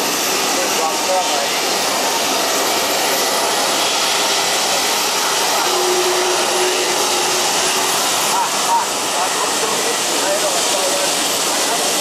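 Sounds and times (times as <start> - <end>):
jet engines idling: 0.0 - 12.0.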